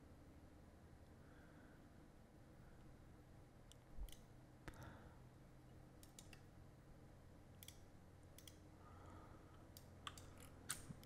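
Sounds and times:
low room hum: 0.0s - 11.0s
computer mouse clicks: 3.7s - 4.8s, 6.0s - 6.5s, 7.6s - 8.7s, 9.6s - 11.0s.

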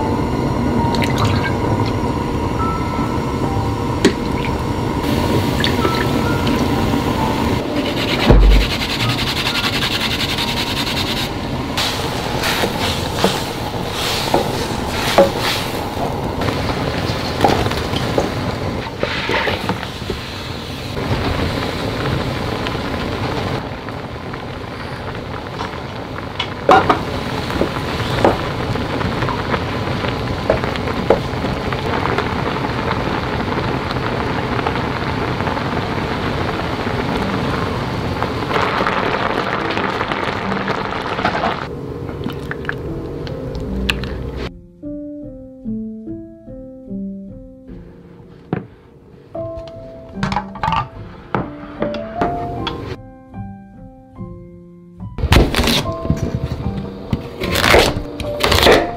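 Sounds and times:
broth simmering and bubbling: 7.9s - 44.5s.

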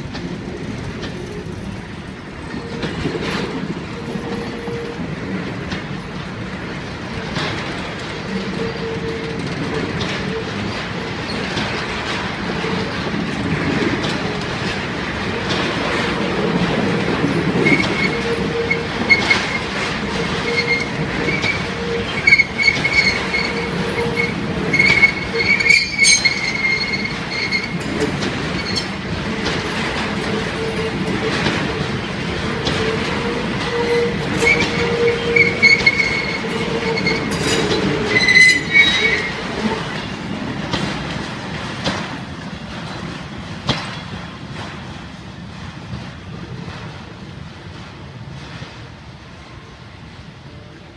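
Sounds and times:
freight train wheels on rails: 0.0s - 50.9s
wheel squeals: 17.6s - 27.8s, 28.4s - 29.5s, 32.5s - 39.8s.

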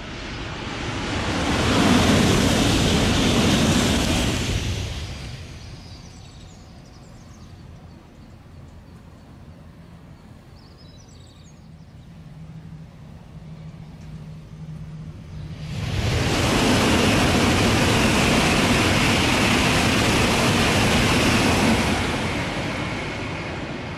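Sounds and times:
bullet train rushing past: 0.0s - 10.4s, 11.7s - 23.9s.

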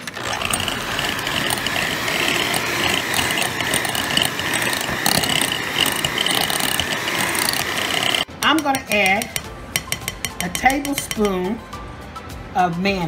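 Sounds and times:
electric hand mixer whining: 0.0s - 8.3s
mixer clicks: 0.0s - 8.3s.

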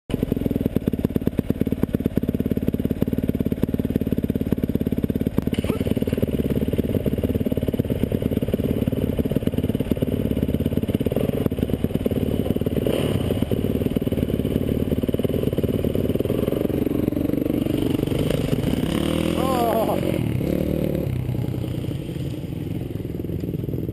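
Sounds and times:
dirt bike engines idling: 0.1s - 23.9s.

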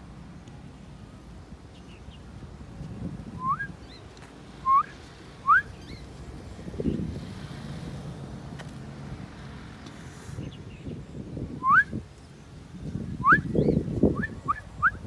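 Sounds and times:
short rising whistles: 3.4s - 3.8s, 4.6s - 6.0s, 11.6s - 11.9s.

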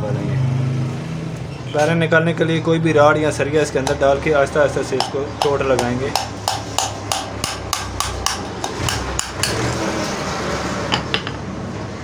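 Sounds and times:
hammer striking steel rod: 5.0s - 9.8s.

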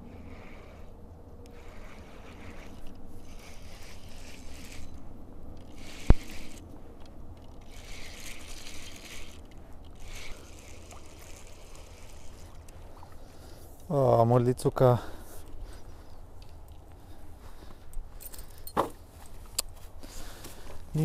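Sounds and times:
fishing reel rustling and scraping: 0.0s - 14.0s, 15.0s - 21.0s.

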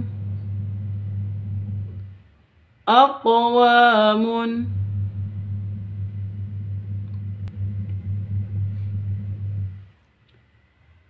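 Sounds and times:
low hum: 0.0s - 2.2s, 4.5s - 9.9s.

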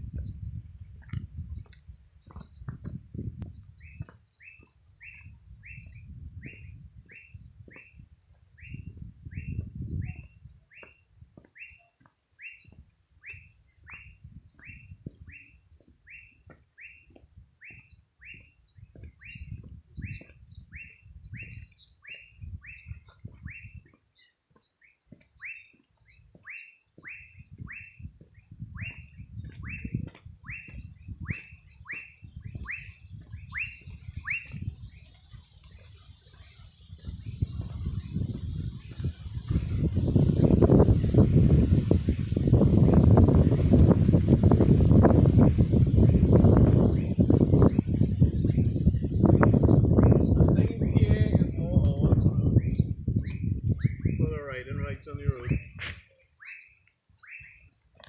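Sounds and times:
low rumbling on microphone: 0.0s - 4.1s, 5.2s - 10.6s, 27.2s - 55.8s.

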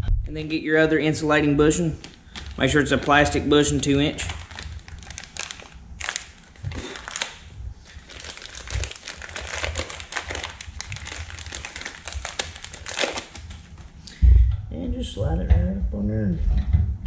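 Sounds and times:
crinkling plastic packaging: 2.0s - 14.0s.

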